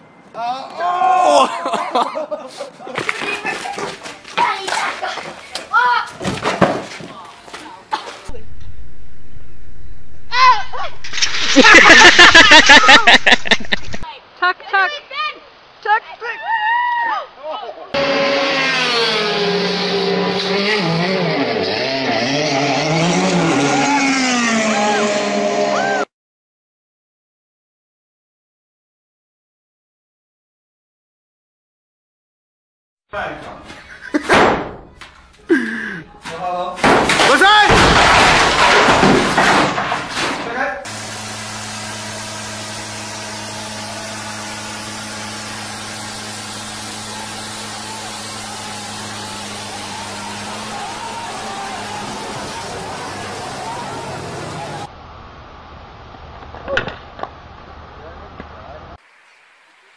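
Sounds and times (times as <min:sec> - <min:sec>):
racing car engines revving: 0:18.0 - 0:26.1, 0:41.2 - 0:54.9.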